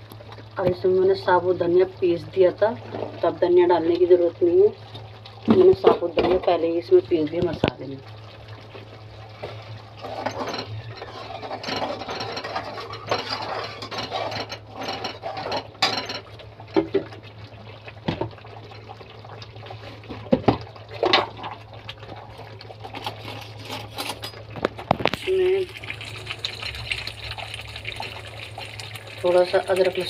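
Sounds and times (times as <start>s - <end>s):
gravy bubbling: 0.0s - 23.8s, 24.4s - 30.0s
metal spoon scraping pan: 11.1s - 15.6s.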